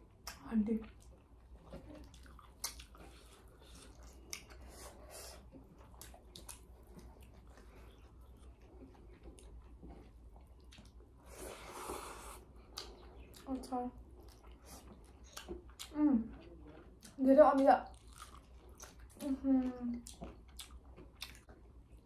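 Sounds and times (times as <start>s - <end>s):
people chewing food: 0.0s - 22.0s
slurp: 11.3s - 12.5s.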